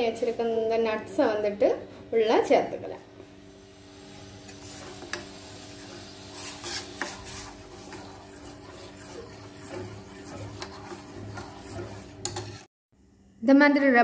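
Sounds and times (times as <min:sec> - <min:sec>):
metal spoon scraping a pot: 0:04.5 - 0:12.7.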